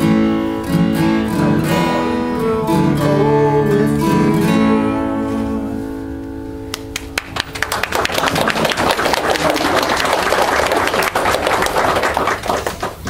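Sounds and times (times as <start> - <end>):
acoustic guitar chord ringing: 0.0 - 7.4
crowd clapping: 6.7 - 13.0.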